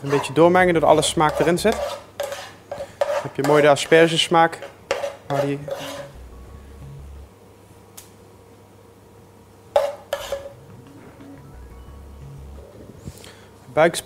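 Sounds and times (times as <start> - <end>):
faint background music: 0.0 - 1.9, 10.4 - 14.0
metal spoon scraping frying pan: 0.0 - 6.2, 9.8 - 10.5.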